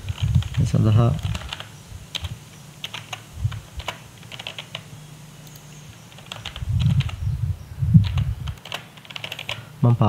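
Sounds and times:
keyboard keystroke clicks: 0:08.0 - 0:09.6.

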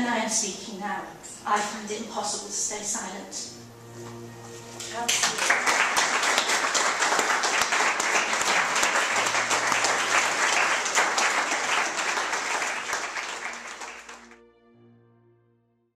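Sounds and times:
audience applauding: 0:05.1 - 0:14.4.

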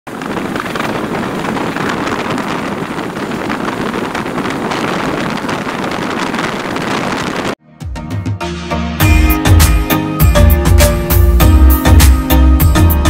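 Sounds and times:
wind buffeting microphone: 0:00.1 - 0:07.6.

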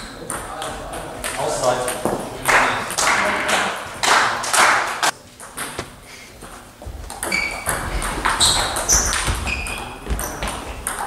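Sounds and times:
table tennis ball pinging: 0:07.1 - 0:11.0
shoes thudding on floor: 0:08.9 - 0:10.8.

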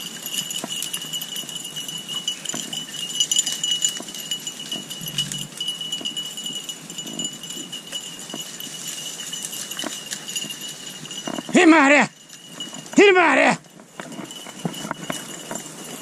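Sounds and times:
high-pitched whine: 0:05.0 - 0:05.5.

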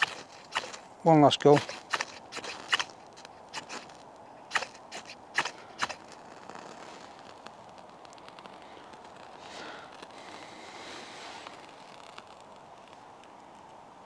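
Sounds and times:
knife scraping fire steel: 0:00.0 - 0:00.8, 0:01.5 - 0:07.4.

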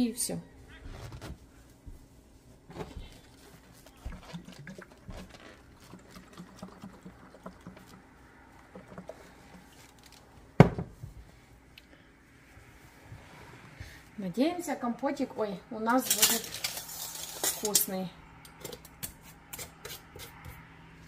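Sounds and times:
cloth towel rubbing glass jars: 0:02.7 - 0:08.0
liquid sloshing in a jar: 0:02.7 - 0:10.3.

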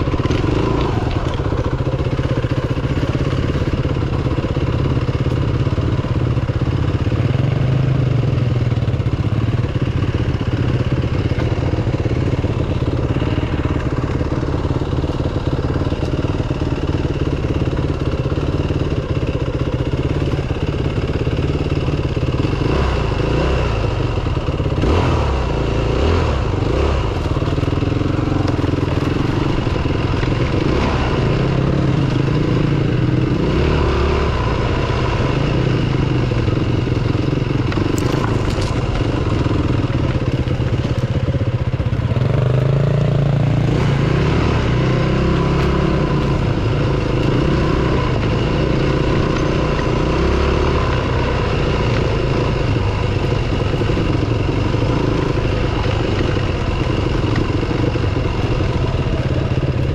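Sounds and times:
dirt bike engine revving: 0:00.0 - 0:05.2, 0:22.4 - 0:41.0, 0:41.9 - 0:59.9.

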